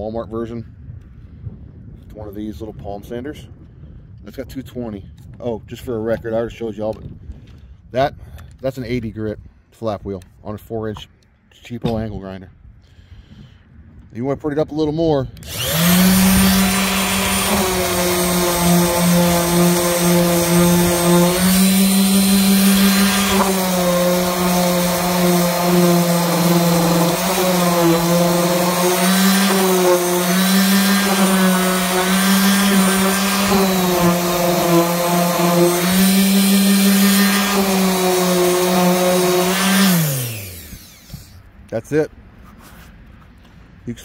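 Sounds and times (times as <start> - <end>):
electric orbital sander running: 15.4 - 41.4.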